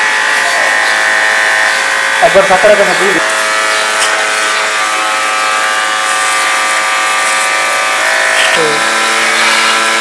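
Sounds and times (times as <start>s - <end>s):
pump whining: 0.0s - 10.0s
water jet spraying: 2.2s - 10.0s.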